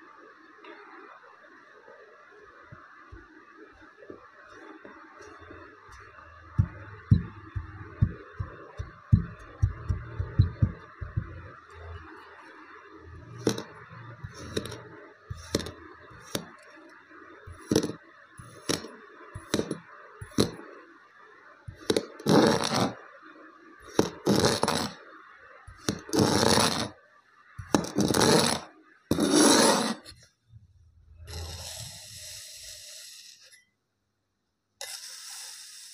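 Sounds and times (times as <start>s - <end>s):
blade scraping sand and table: 13.2s - 16.5s, 17.5s - 20.6s, 21.8s - 23.0s, 23.9s - 25.0s, 25.8s - 26.9s, 27.7s - 30.2s, 34.8s - 35.9s.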